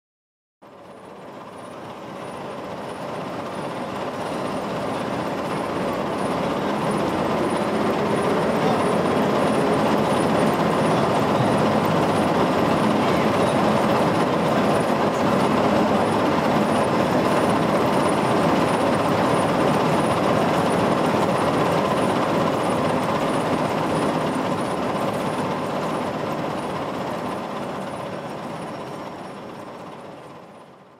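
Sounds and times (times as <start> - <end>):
milling machine cutting steel: 3.0 - 28.6.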